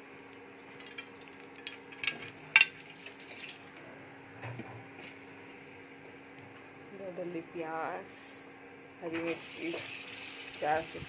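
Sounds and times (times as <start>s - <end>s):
oil sizzling: 9.2s - 11.0s.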